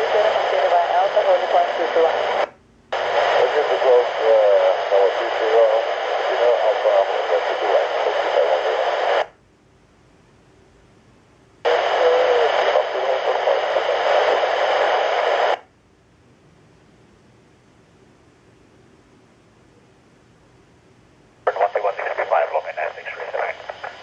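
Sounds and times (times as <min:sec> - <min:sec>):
radio static bursts: 0:00.0 - 0:09.3, 0:11.7 - 0:15.6, 0:21.5 - 0:24.0.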